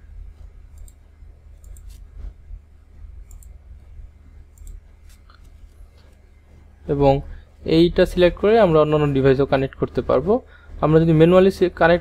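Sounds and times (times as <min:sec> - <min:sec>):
low steady hum: 0:00.0 - 0:12.0
computer mouse clicking: 0:00.7 - 0:02.1, 0:03.2 - 0:03.6, 0:04.5 - 0:06.2.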